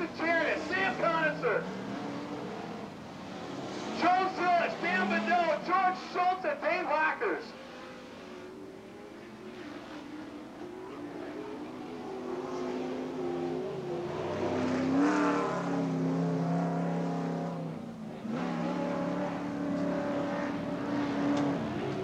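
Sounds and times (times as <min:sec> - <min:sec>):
race truck engines revving: 0:00.0 - 0:22.0.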